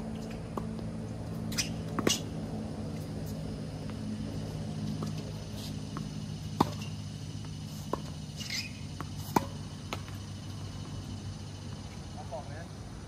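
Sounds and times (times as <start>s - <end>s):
low hum: 0.0s - 13.0s
racket hitting tennis ball: 1.4s - 2.4s, 5.0s - 10.2s.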